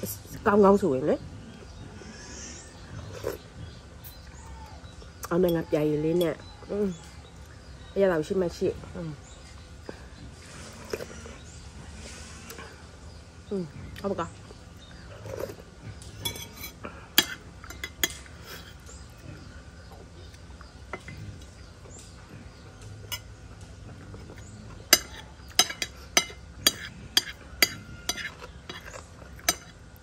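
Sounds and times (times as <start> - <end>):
metal spoon clinking on a plate: 16.2 - 18.3, 24.9 - 29.8.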